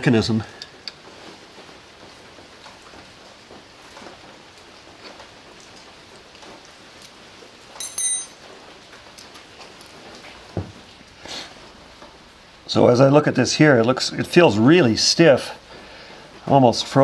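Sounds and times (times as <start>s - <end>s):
sharp metallic clink: 7.8s - 8.4s
small clicks and rustles: 8.9s - 10.5s.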